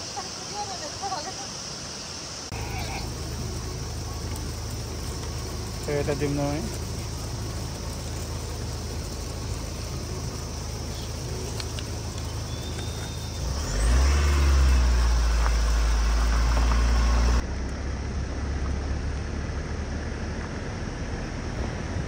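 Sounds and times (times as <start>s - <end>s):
vehicle rumble at road speed: 1.5s - 22.0s.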